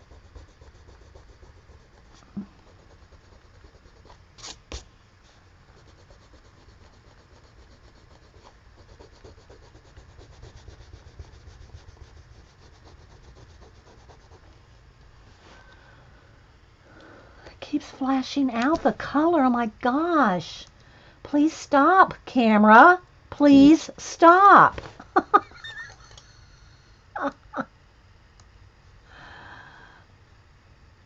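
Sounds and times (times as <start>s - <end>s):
colored pencil rubbing on paper: 0.0s - 4.8s, 5.6s - 14.6s.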